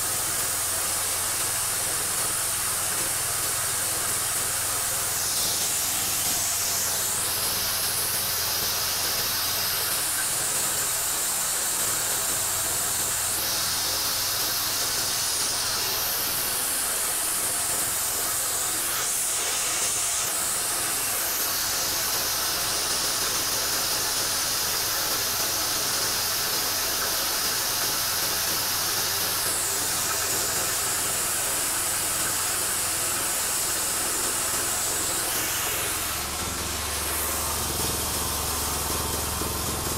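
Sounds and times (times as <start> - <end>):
small engine humming: 0.0 - 39.9.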